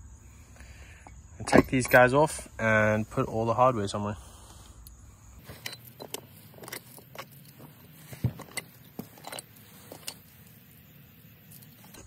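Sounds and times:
screws and bolts clinking: 1.0 - 2.4, 5.4 - 12.0.

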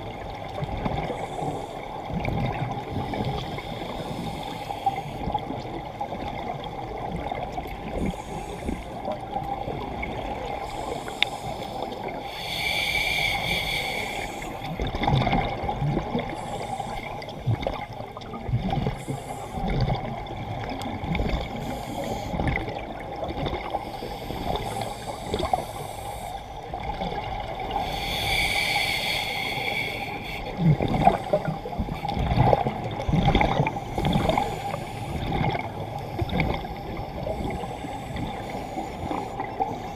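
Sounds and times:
dull underwater rumble: 0.0 - 39.9
exhaled bubbles gurgling: 0.0 - 39.9
regulator inhalation hiss: 10.6 - 14.7, 16.3 - 17.2, 21.6 - 22.4, 23.9 - 26.6, 27.7 - 30.5, 33.8 - 35.2.

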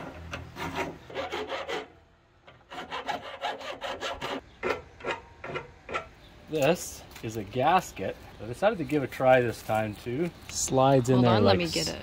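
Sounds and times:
hand file rasping on metal: 0.4 - 1.9, 2.5 - 6.1.

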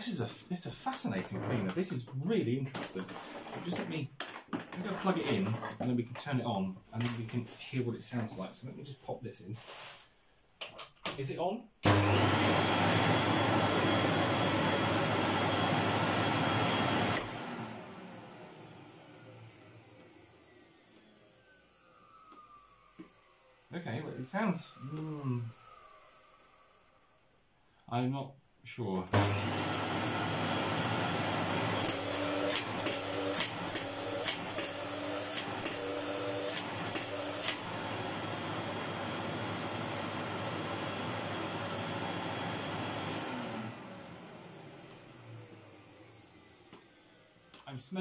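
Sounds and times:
vacuum cleaner running: 2.7 - 4.0, 4.7 - 5.8, 11.8 - 27.2, 29.1 - 48.0.

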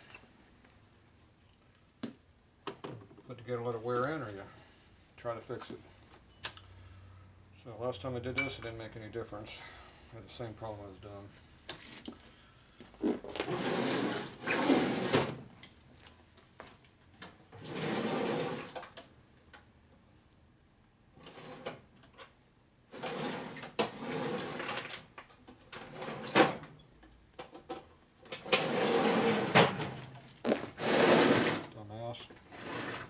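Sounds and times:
metal drawers sliding: 25.8 - 26.7, 28.4 - 30.0, 30.7 - 31.7, 32.5 - 33.0.

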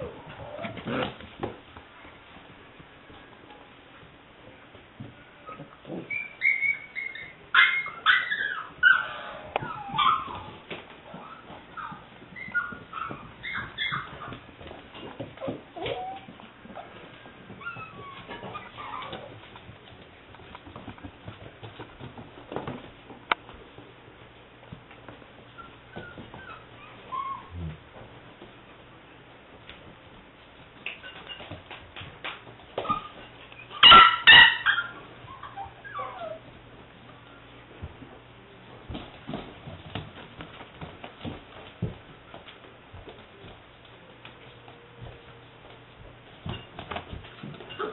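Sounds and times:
puppy whimpering: 5.4 - 14.4, 15.3 - 19.4, 25.6 - 27.8, 32.8 - 36.5
puppy yipping barks: 6.4 - 10.4, 11.8 - 14.4, 33.7 - 36.4.

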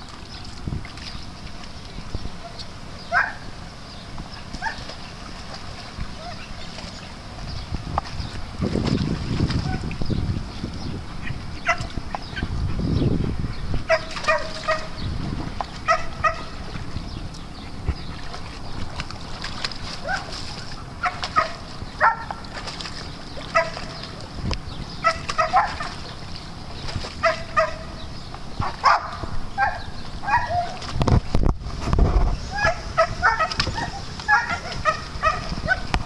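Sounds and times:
dogs yipping: 2.4 - 3.5, 4.6 - 4.9, 11.2 - 12.6, 13.8 - 15.0, 15.8 - 16.6, 20.0 - 22.4, 23.5 - 24.0, 25.0 - 26.1, 27.2 - 28.0, 28.6 - 30.9, 32.5 - 36.0.

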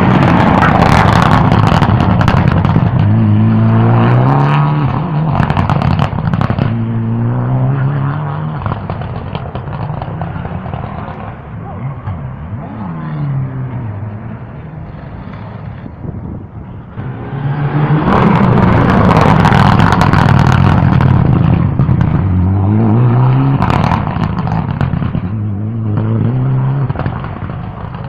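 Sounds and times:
exhaust crackles: 0.0 - 28.0
rally car engine revving past: 3.0 - 9.0, 16.9 - 27.3.

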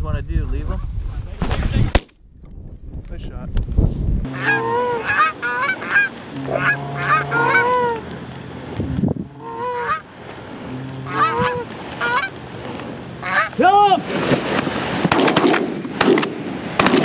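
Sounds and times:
goose call honks and clucks: 4.3 - 8.1, 9.2 - 12.4, 13.2 - 13.6.

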